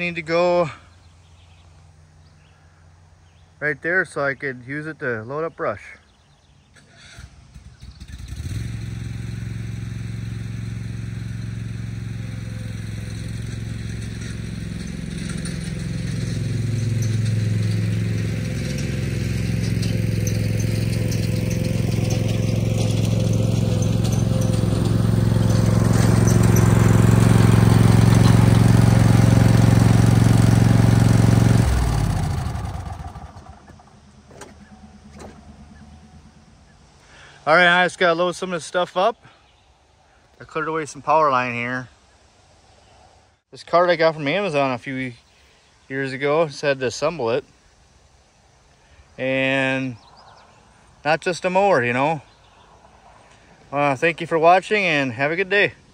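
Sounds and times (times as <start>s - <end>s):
lawn mower engine running: 6.8s - 38.0s
rising whine: 16.8s - 37.0s.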